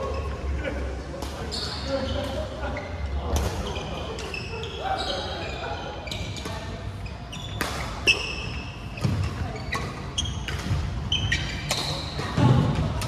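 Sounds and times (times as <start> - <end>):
shoes squeaking on wooden floor: 3.7 - 12.1
racket hitting shuttlecock: 9.0 - 12.8.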